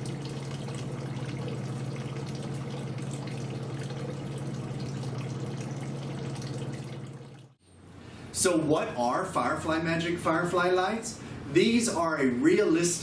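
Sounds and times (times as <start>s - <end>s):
water trickling and dripping: 0.0s - 7.6s
steady low hum: 0.0s - 9.6s.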